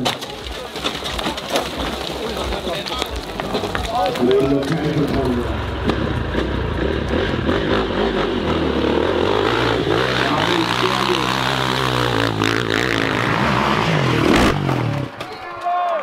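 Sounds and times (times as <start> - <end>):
motocross bike engine revving: 3.2 - 15.2.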